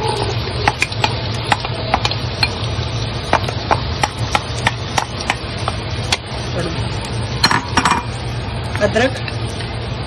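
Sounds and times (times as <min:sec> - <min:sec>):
onions sizzling in oil: 0:00.0 - 0:10.0
spatula tapping a pot: 0:00.6 - 0:06.3.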